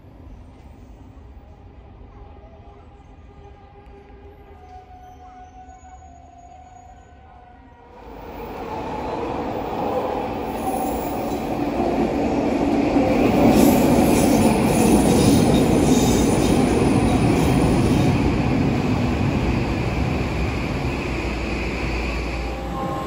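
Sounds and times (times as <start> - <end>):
train wheels rumbling on track: 8.0 - 23.0.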